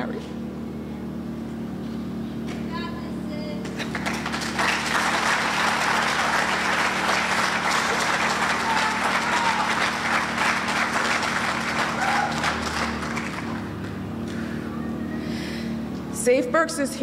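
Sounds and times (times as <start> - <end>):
audience applauding: 3.7 - 14.4.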